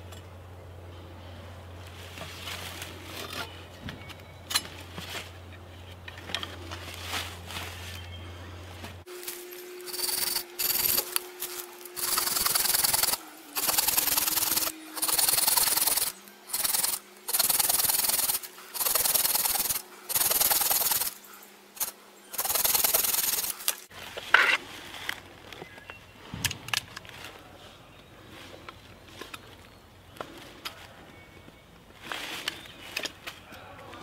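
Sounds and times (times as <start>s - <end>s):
handling noises: 1.8s - 15.2s
saw cutting wood: 9.1s - 23.9s.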